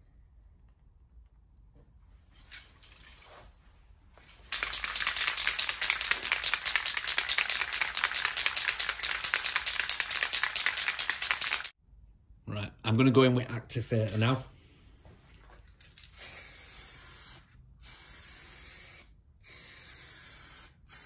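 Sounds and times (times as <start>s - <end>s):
aerosol can rattling: 4.5s - 11.7s.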